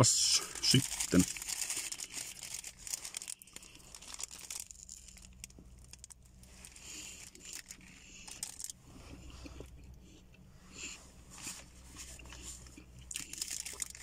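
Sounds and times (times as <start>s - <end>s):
paper wrapper crinkling: 0.3s - 8.8s, 13.1s - 14.0s
quiet chewing: 1.8s - 14.0s.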